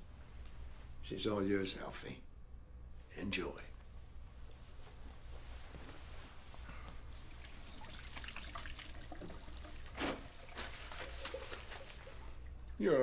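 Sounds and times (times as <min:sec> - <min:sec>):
low steady hum: 0:00.0 - 0:13.0
man urinating into toilet: 0:07.1 - 0:12.8.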